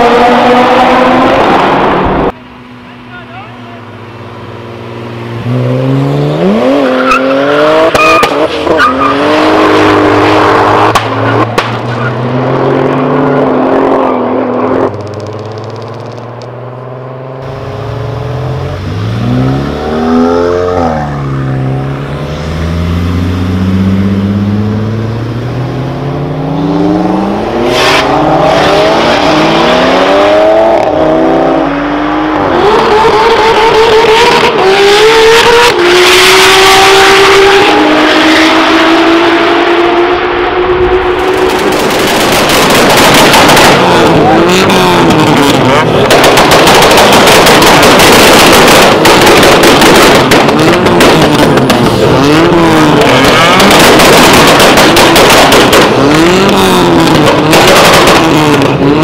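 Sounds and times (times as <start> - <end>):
car engines revving: 0.0 - 59.0
sharp cracks: 10.9 - 12.1, 14.9 - 16.6, 41.3 - 44.3, 44.9 - 52.0, 52.9 - 58.8.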